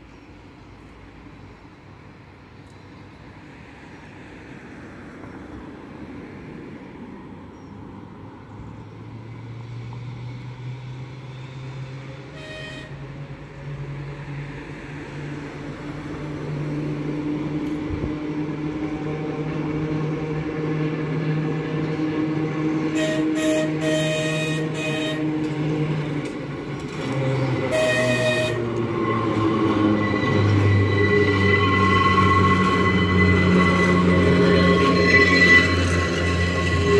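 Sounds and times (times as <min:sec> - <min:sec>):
electric tram motor hum: 0:11.3 - 0:36.9.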